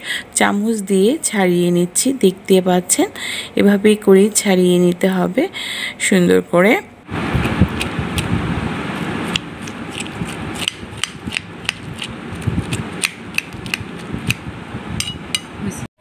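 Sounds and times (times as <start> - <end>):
spoon scraping fruit flesh: 7.4 - 8.3, 8.9 - 14.4.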